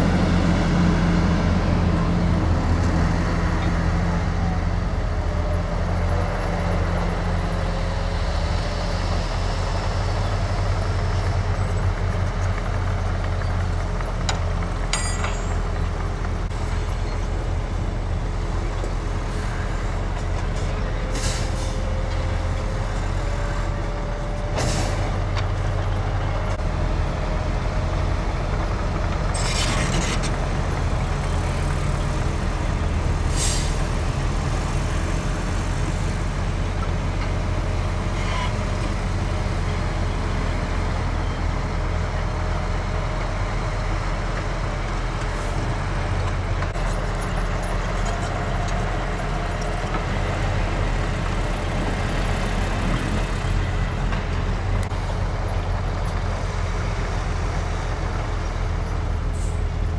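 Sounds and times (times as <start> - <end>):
diesel truck engines running: 0.0 - 59.9
air brake hisses: 21.1 - 21.8, 33.3 - 33.8.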